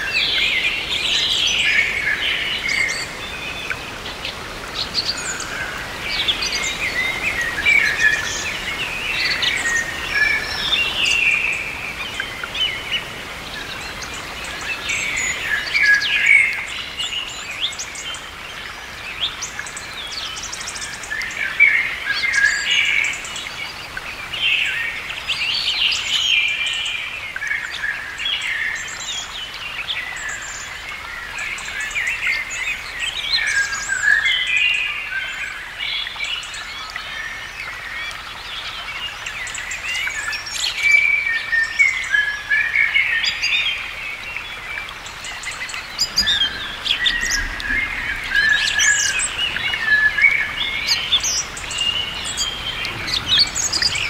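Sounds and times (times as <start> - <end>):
blackbird singing: 45.2 - 54.0.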